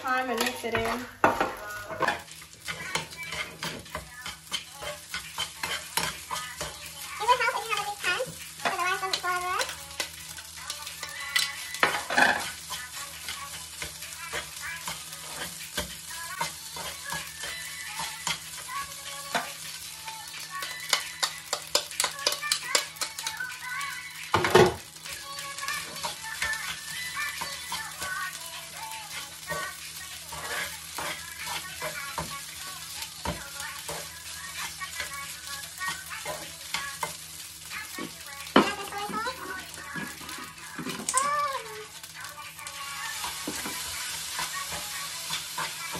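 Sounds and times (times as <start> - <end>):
food sizzling: 0.0 - 45.9
metal spatula scraping frying pan: 0.2 - 24.4.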